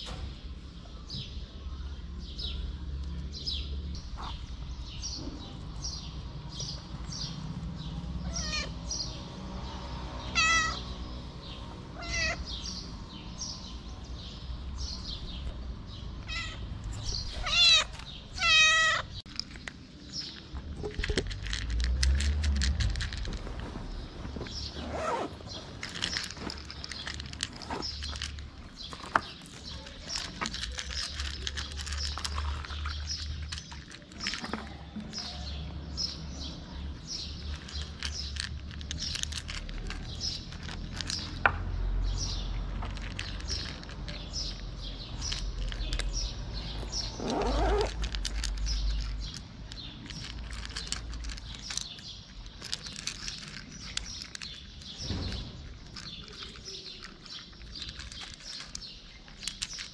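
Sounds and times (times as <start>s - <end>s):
small birds chirping: 0.0s - 59.9s
cats crunching dry kibble: 5.7s - 8.7s, 10.2s - 10.8s, 11.8s - 12.7s, 16.2s - 41.6s, 42.4s - 59.9s.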